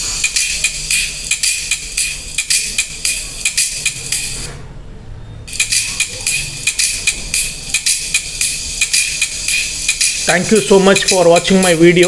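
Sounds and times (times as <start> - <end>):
quick steady ticking beat: 0.0 - 4.4, 5.5 - 12.0
tinny treble-only music: 0.0 - 4.6, 5.4 - 12.0.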